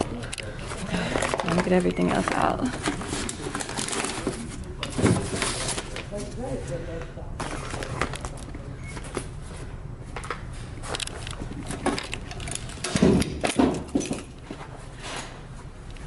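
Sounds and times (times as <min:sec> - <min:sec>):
keys and mail clicks and rustles: 0:01.1 - 0:06.2, 0:10.8 - 0:14.6.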